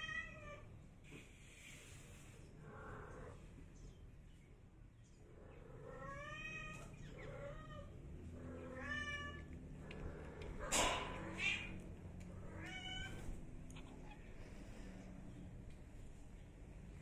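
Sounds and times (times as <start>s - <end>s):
cat meowing: 5.9s - 7.9s, 8.5s - 9.5s, 12.5s - 14.2s.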